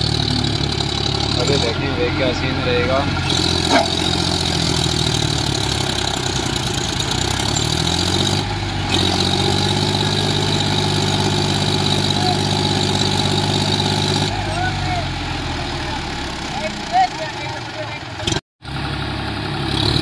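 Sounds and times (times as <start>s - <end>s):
tractor diesel engine: 0.0s - 20.0s.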